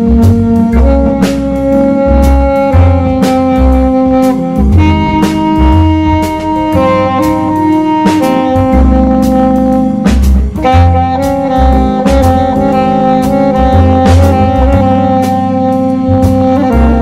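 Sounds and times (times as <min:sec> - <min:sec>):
bass and drum kit backing: 0:00.0 - 0:17.0
saxophone improvising jazz: 0:00.0 - 0:17.0.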